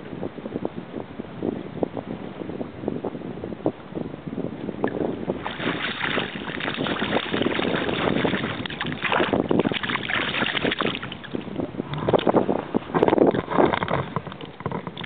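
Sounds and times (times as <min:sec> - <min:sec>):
fish splashing in water: 0:05.4 - 0:11.5.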